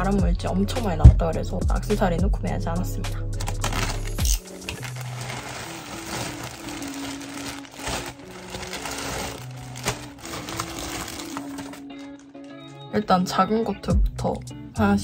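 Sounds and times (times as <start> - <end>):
soft background music: 0.0 - 15.0
packaging rustling and crinkling: 3.4 - 12.7.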